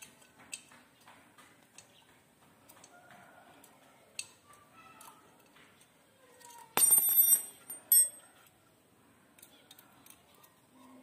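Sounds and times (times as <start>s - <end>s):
short metallic clink: 6.8s - 8.2s.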